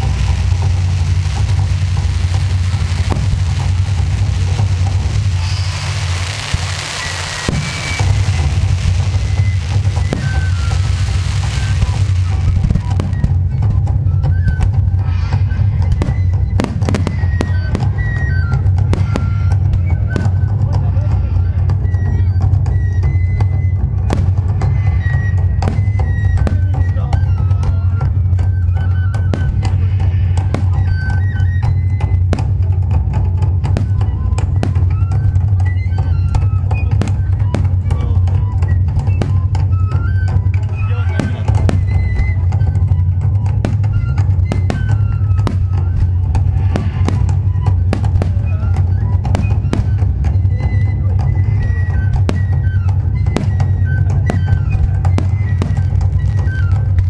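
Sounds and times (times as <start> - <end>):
sharp cracks: 0.0 - 13.3
music with heavy bass: 0.0 - 13.7
firework shells bursting: 0.0 - 13.9, 41.2 - 50.9, 52.0 - 57.0
music with drums and melody: 0.0 - 57.0.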